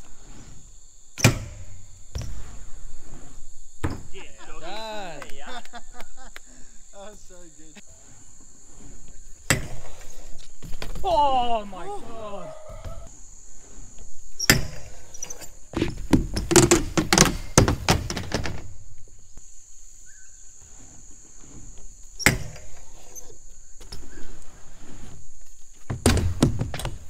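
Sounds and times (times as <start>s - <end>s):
bike thudding onto wooden ramp: 1.1s - 3.0s, 3.6s - 4.4s, 9.3s - 11.5s, 14.4s - 19.0s, 22.0s - 22.9s, 25.7s - 27.0s
bike clattering and rattling: 3.6s - 4.2s, 14.3s - 19.1s, 25.6s - 27.0s.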